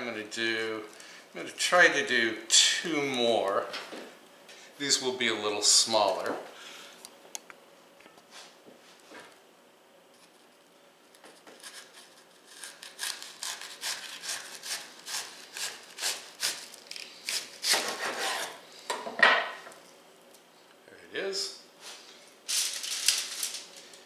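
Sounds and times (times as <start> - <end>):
knife sawing through cabbage: 11.6 - 18.6.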